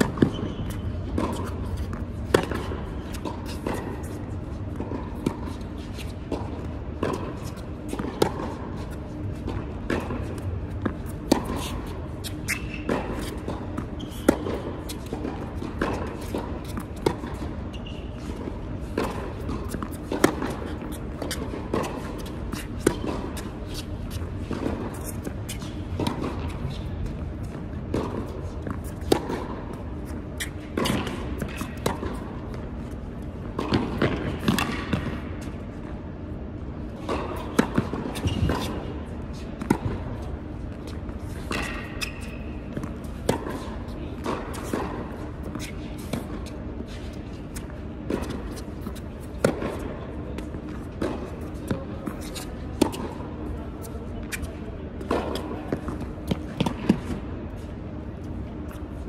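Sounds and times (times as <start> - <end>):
tennis ball bouncing: 0.0 - 36.2, 36.8 - 57.7
tennis ball struck by racquets: 9.2 - 32.6, 33.5 - 35.8, 41.4 - 53.2, 55.0 - 57.2.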